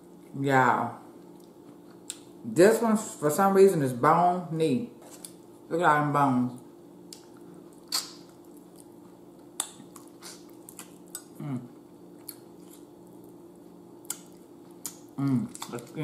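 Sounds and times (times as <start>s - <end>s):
lip smacks: 7.1s - 8.9s, 9.6s - 11.3s, 14.0s - 15.8s
wet chewing clicks: 7.1s - 8.9s
person humming: 11.4s - 11.7s.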